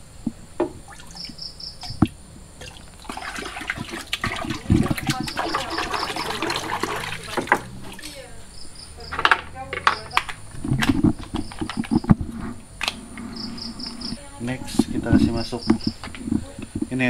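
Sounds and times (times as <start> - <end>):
water pouring into a tub: 1.8 - 8.1.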